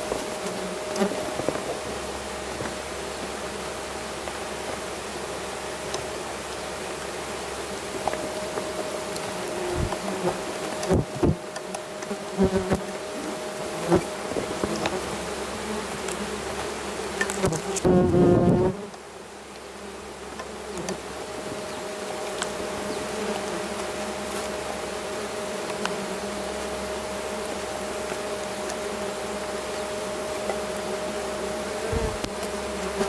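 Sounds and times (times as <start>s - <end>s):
wasps buzzing: 5.9s - 19.0s, 19.7s - 33.0s
close wasp buzz: 6.6s - 33.0s.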